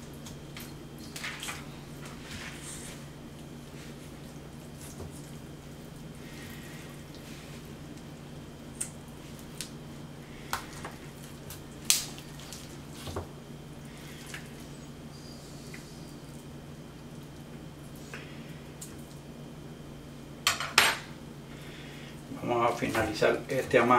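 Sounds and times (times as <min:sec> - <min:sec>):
needle clicks and wet sounds: 0:06.5 - 0:13.0.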